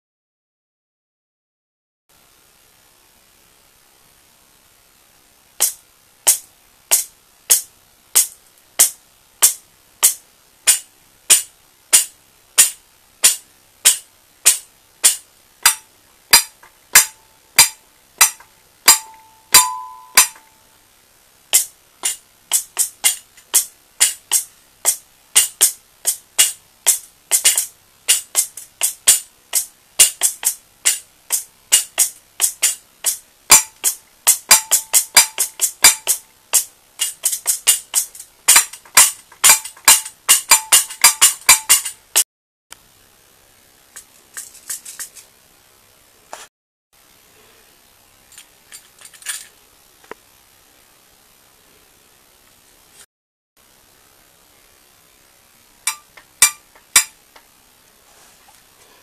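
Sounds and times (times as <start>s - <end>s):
stomped foot pedal percussion: 8.2s - 20.5s, 21.6s - 42.2s
bell ringing: 19.0s - 20.4s.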